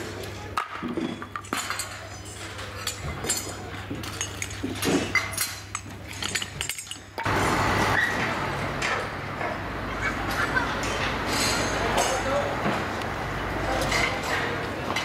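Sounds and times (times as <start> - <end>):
metal parts clinking and clattering: 0.6 - 7.3, 11.3 - 12.3.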